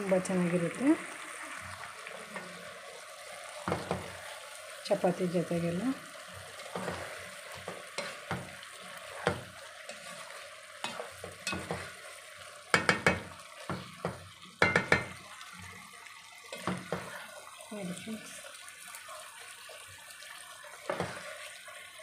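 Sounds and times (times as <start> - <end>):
ladle scraping pot: 6.6 - 15.2
sharp knocks on pot: 12.7 - 15.2.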